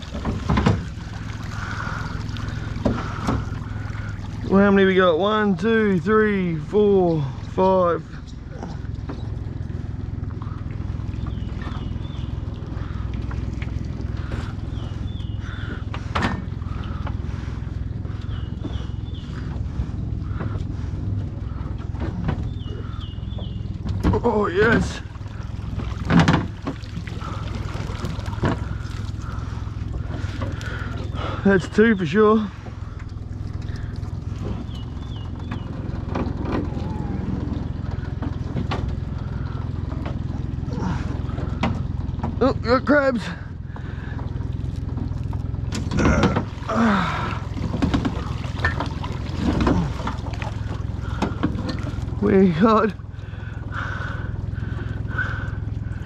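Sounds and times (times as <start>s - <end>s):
outboard motor idling: 0.0s - 56.0s
high warbling calls: 27.1s - 38.2s.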